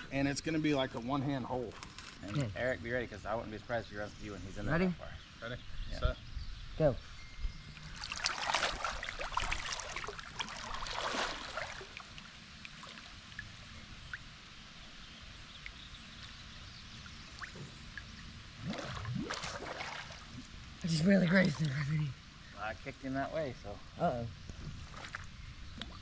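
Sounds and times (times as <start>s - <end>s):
water splashing and sloshing: 7.7s - 22.3s, 24.4s - 26.0s
water lapping: 7.8s - 14.2s, 17.0s - 22.2s.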